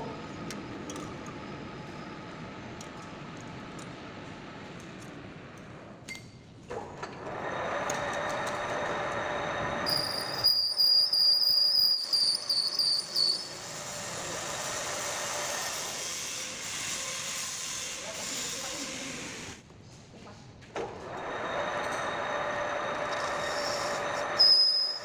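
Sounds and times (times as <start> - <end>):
metal lathe running: 7.2 - 11.1, 12.4 - 19.5, 21.1 - 25.0
high-pitched tool squeal on metal: 9.8 - 19.3, 22.9 - 25.0.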